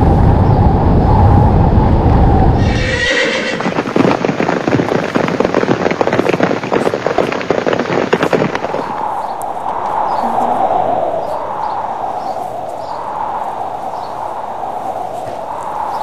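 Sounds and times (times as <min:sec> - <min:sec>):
horse whinnying: 0:02.6 - 0:03.8
galloping hoofbeats: 0:02.6 - 0:10.2.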